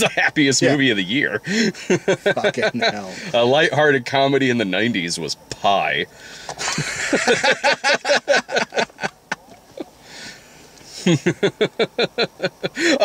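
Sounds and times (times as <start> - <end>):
men laughing: 0.0 - 3.5, 6.4 - 13.0.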